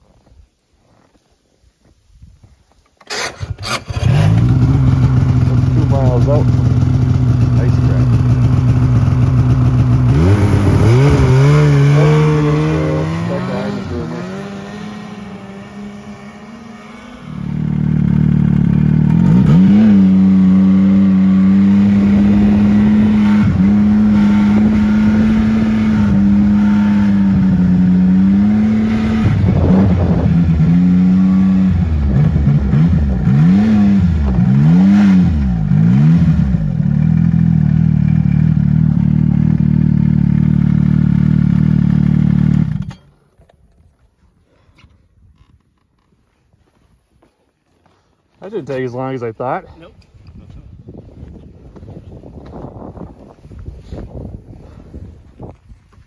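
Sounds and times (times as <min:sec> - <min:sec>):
snowmobile engine revving: 0:03.1 - 0:42.8.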